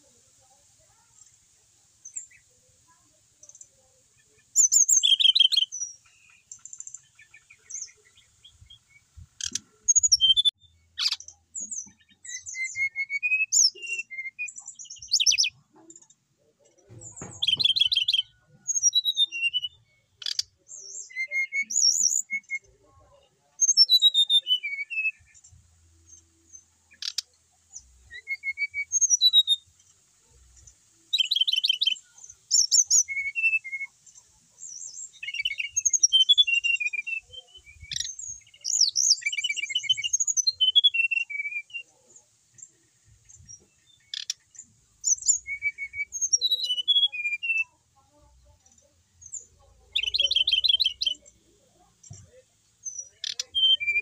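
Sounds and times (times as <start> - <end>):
bird singing whistled phrases: 4.6 - 6.0, 7.7 - 11.2, 11.9 - 15.6, 17.3 - 22.8, 23.6 - 25.4, 28.0 - 29.6, 31.1 - 34.0, 34.7 - 42.0, 45.0 - 47.8, 49.3 - 51.3, 52.8 - 54.0.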